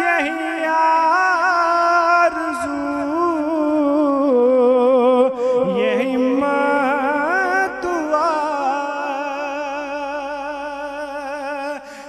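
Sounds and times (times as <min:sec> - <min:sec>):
man singing into a microphone: 0:00.0 - 0:12.0.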